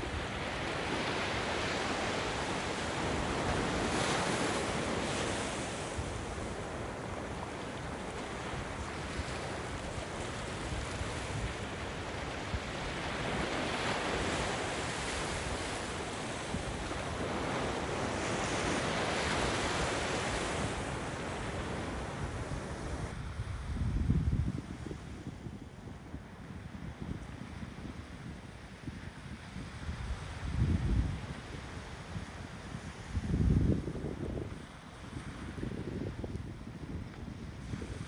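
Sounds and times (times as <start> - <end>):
waves breaking on rocks and beach: 0.0 - 23.7.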